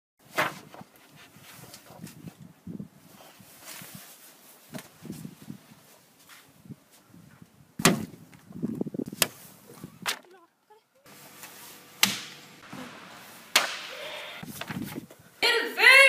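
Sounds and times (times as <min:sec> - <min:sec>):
slaps on wooden doors: 0:12.0 - 0:12.4.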